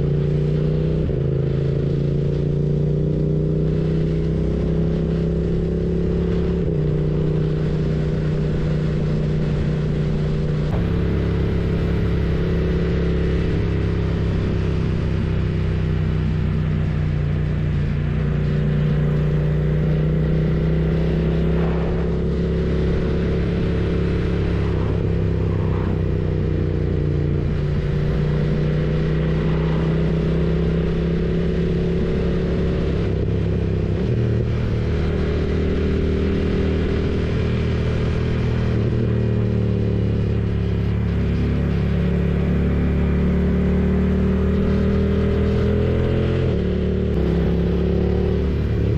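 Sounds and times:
motorcycle engine running: 0.0 - 48.9.

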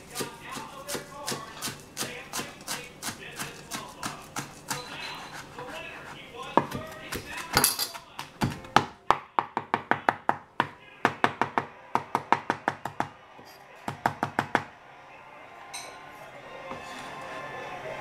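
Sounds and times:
knife chopping on plastic board: 0.0 - 5.5, 6.5 - 13.1, 13.9 - 14.7.

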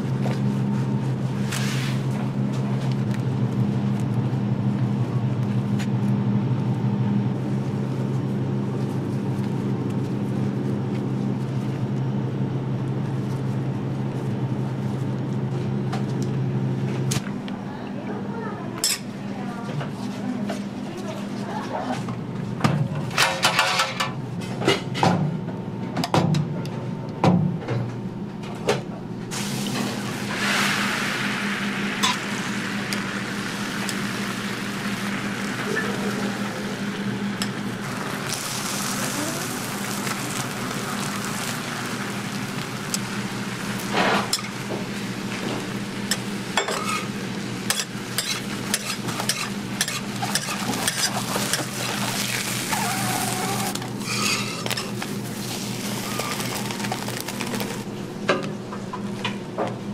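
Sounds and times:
egg sizzling on griddle: 29.3 - 57.9
metal spatula scraping griddle: 54.0 - 54.9.

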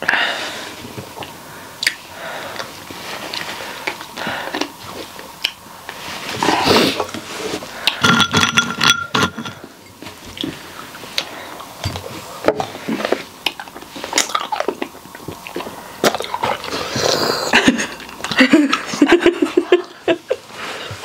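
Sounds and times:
person chewing with wet clicks: 1.1 - 6.0, 11.1 - 17.2.

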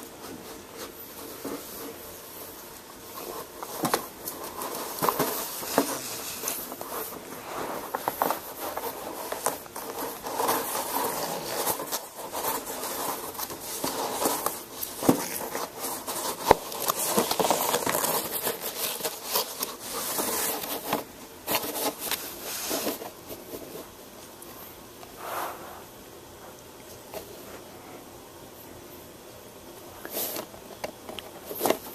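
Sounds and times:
paper rubbing and rustling: 0.2 - 24.0.

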